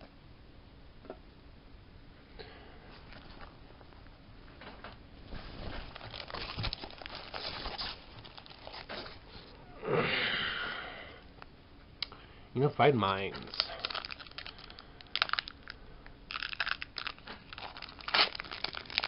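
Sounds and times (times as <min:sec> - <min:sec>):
foil packs rustling in fabric bag: 0:05.4 - 0:09.5, 0:13.4 - 0:15.7, 0:16.3 - 0:19.0.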